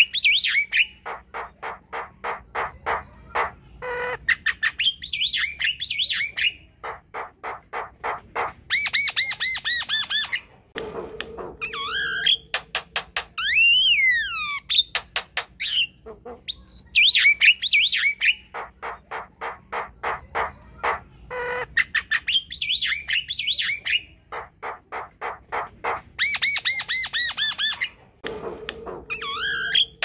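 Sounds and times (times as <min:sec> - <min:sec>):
bird singing varied song: 0:03.8 - 0:06.7, 0:11.6 - 0:18.6, 0:21.8 - 0:24.2.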